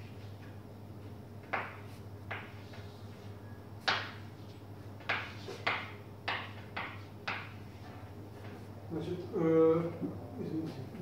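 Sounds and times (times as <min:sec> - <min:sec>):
steady low hum: 0:00.0 - 0:11.0
chalk tapping on a blackboard: 0:01.4 - 0:03.2, 0:03.8 - 0:04.3, 0:05.0 - 0:07.8.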